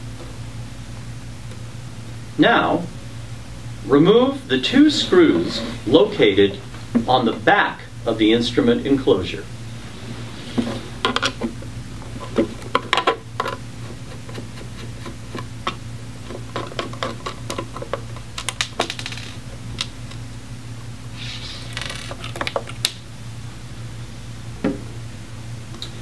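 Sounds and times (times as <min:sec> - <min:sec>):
steady low hum: 0:00.0 - 0:26.0
rustling scrapes: 0:04.9 - 0:06.2, 0:09.7 - 0:12.6
clicks and knocks of plastic and metal: 0:12.2 - 0:19.9.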